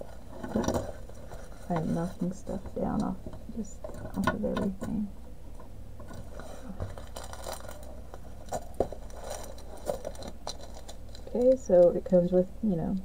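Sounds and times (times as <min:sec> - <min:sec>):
paper and plastic crinkling: 0:06.1 - 0:12.2.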